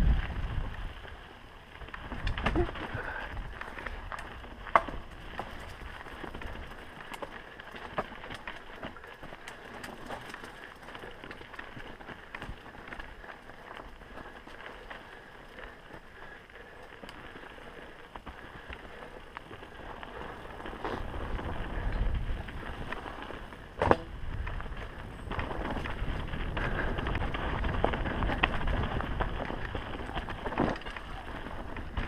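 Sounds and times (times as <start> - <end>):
wind rumble on microphone: 0.0 - 8.9, 17.3 - 32.0
bike rattling over rough ground: 0.0 - 32.0
bike tyres on dirt: 0.0 - 32.0.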